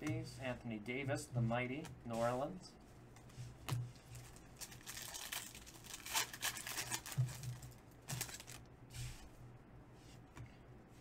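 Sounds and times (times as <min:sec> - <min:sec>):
foil wrappers crinkling and tearing: 0:04.1 - 0:08.7.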